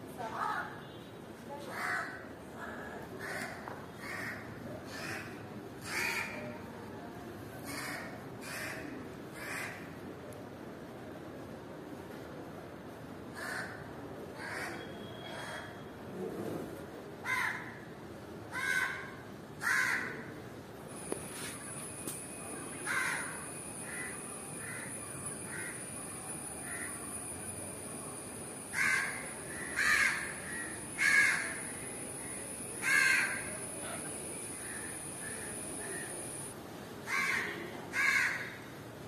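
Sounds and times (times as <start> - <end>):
high-pitched whine: 20.9 - 36.6
bird calling loudly: 22.6 - 27.3, 28.6 - 36.5.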